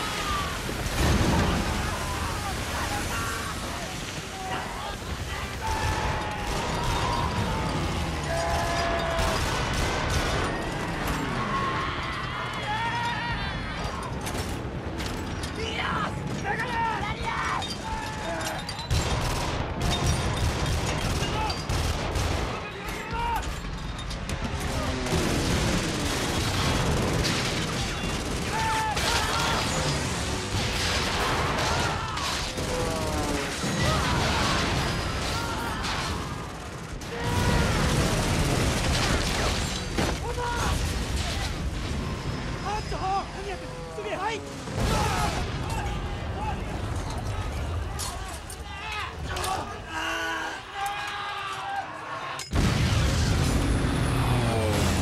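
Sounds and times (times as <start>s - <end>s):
rapid gunfire: 0.0s - 11.1s, 18.9s - 22.8s, 24.3s - 41.9s
explosions: 0.0s - 11.4s, 24.3s - 42.9s, 44.4s - 47.8s, 52.5s - 55.0s
men shouting: 1.8s - 9.5s, 28.0s - 30.0s
anti-aircraft guns firing rapidly: 5.0s - 11.3s, 18.9s - 22.8s, 23.7s - 42.4s.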